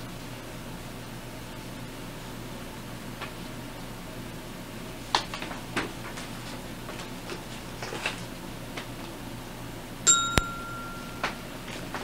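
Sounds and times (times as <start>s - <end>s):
tape hiss and hum: 8.4s - 12.0s
bell-like ding: 10.1s - 11.5s.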